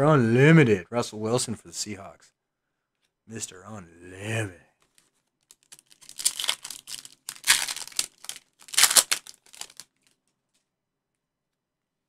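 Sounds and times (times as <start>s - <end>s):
foil wrapper tearing and crinkling: 5.4s - 10.2s.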